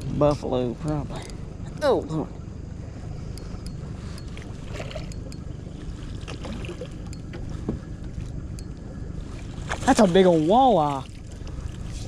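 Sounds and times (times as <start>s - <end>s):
boat motor running: 0.0s - 12.0s
light water splashing: 3.4s - 12.0s.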